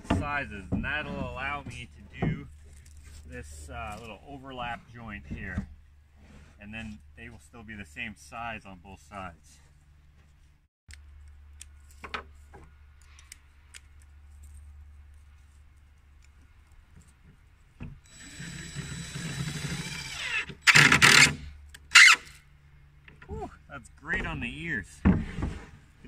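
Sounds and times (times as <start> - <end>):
cordless drill boring into plywood: 18.1 - 22.4.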